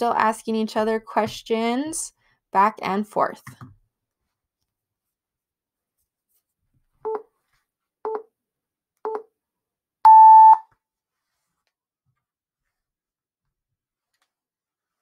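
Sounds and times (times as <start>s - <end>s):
long high timer beep: 10.1s - 10.6s.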